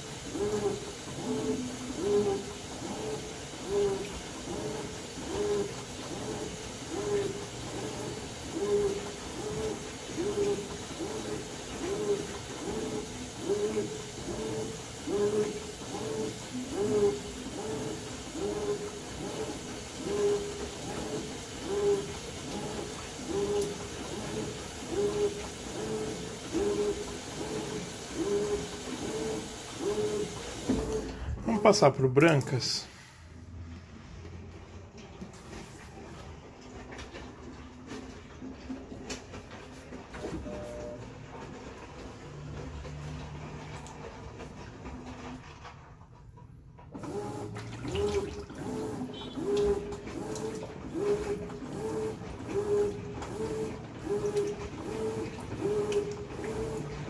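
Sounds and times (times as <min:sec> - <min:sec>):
washing machine motor whirring: 0:00.0 - 0:57.0
water and towels sloshing: 0:47.0 - 0:57.0.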